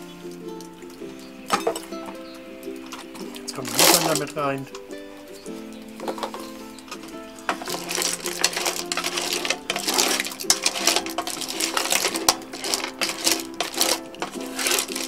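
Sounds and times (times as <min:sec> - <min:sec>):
shells clattering in metal pot: 0:01.5 - 0:02.2, 0:02.8 - 0:04.9, 0:06.0 - 0:15.0.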